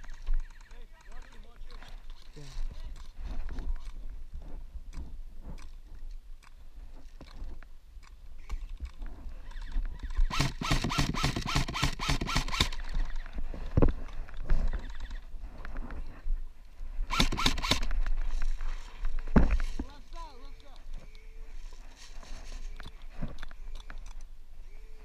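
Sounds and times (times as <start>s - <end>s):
airsoft rifle firing: 10.2s - 12.9s, 17.1s - 17.9s.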